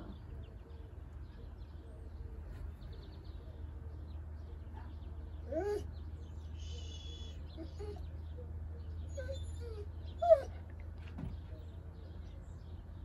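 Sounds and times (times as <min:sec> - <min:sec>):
small birds chirping: 0:00.0 - 0:13.0
animal whining: 0:06.6 - 0:08.1, 0:09.1 - 0:10.6.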